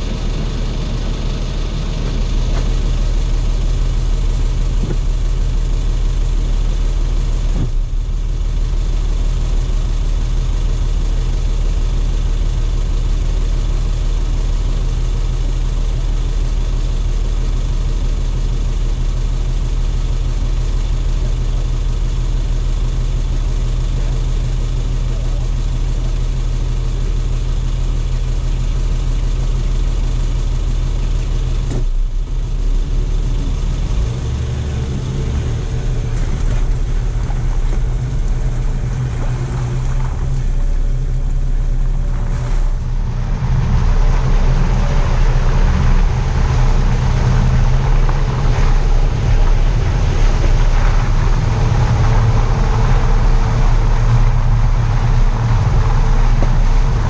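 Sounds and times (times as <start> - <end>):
engine running steadily: 0.0 - 57.0
tyres rolling on muddy lane: 32.6 - 57.0.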